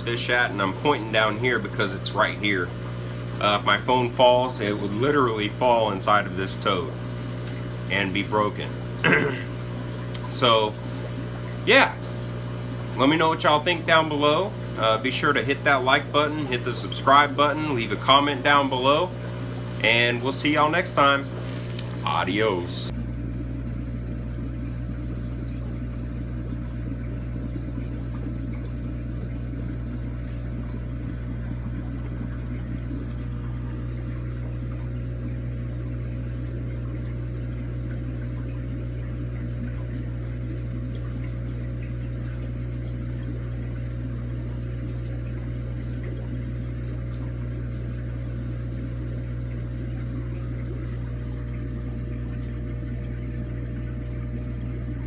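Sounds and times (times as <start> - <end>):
circulating water rushing: 0.0 - 55.0
water pump humming: 0.0 - 55.0.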